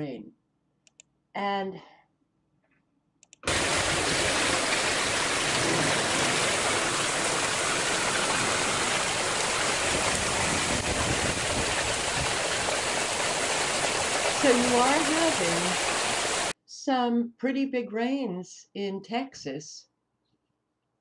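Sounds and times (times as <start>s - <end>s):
faint clicks: 0.8s - 1.1s, 3.2s - 3.4s
torrential rain hissing: 3.5s - 16.5s.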